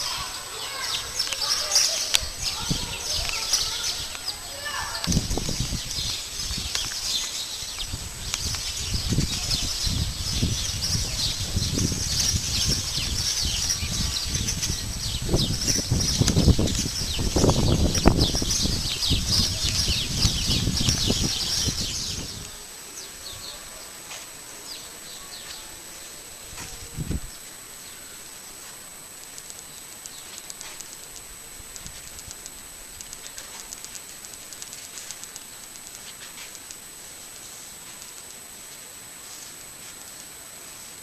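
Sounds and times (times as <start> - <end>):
wind gusting on microphone: 0.0 - 23.8, 26.3 - 27.4
small birds chirping: 0.0 - 41.0.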